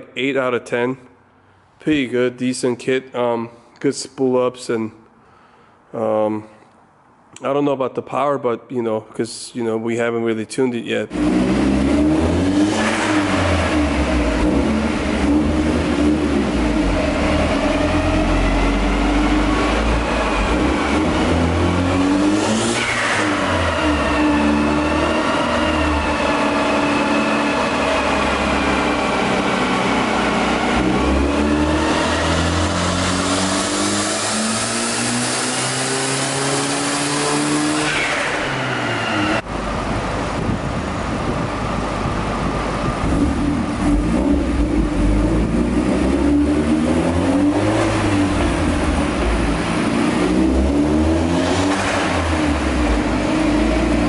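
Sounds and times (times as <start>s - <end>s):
turbocharged car engine revving: 11.1s - 40.5s, 42.8s - 54.0s.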